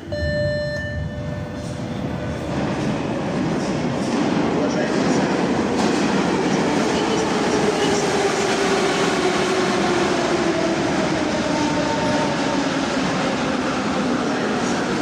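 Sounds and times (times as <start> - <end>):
metro train braking: 0.0 - 15.0.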